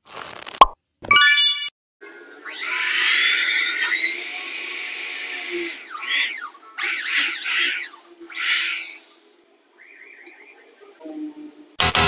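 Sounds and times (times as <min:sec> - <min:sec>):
electric drill boring into wood: 0:02.4 - 0:09.1.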